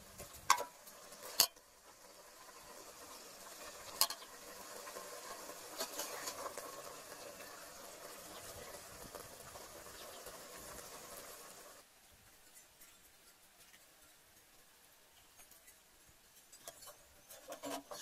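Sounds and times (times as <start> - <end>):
metal ladle stirring in a pot: 0.1 - 11.8, 16.4 - 18.0.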